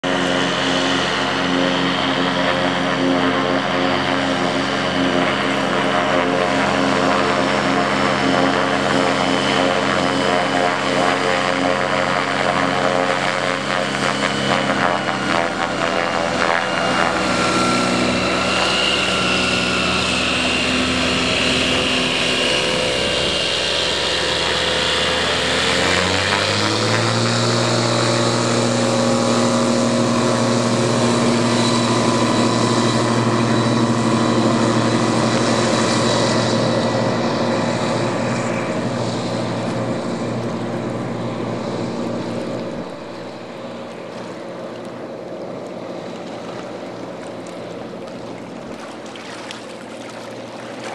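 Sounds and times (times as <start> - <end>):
floatplane engine at high power: 0.0 - 50.9.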